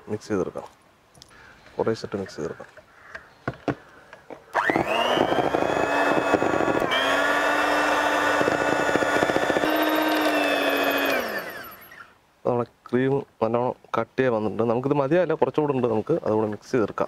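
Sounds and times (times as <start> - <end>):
electric hand mixer whine: 4.6 - 12.1.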